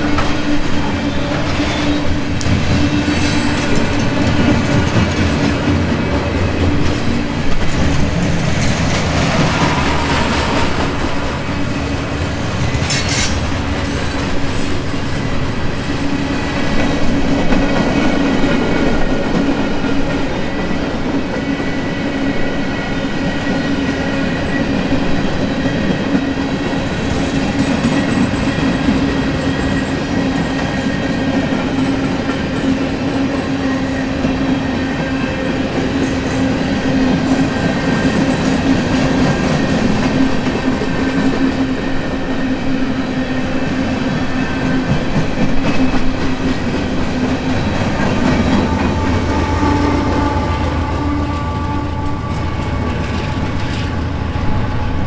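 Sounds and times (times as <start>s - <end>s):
freight cars rumbling: 0.0s - 15.8s.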